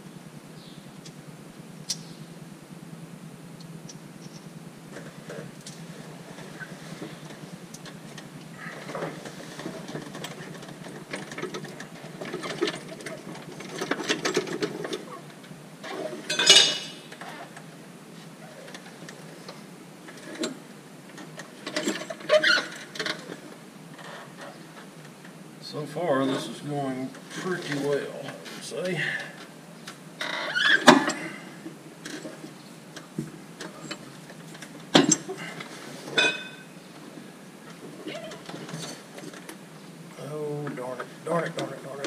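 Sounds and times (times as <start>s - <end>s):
metal clinks knocks and scrapes: 15.9s - 17.0s, 33.6s - 36.7s.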